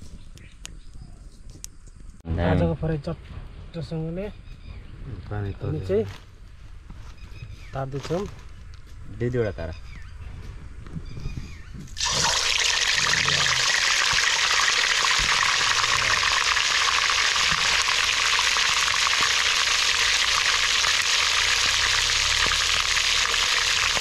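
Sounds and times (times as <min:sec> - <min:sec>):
hot oil sizzling in a wok: 0:12.0 - 0:24.0.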